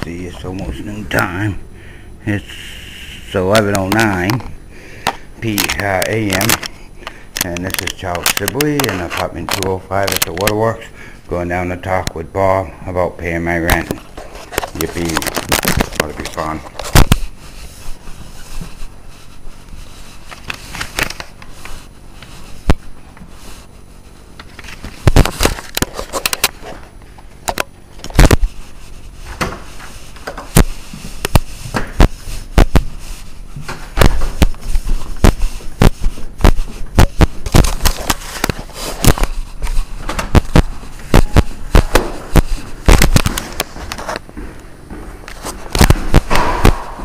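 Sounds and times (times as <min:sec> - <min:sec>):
sharp crackles and pops: 0:34.0 - 0:44.2.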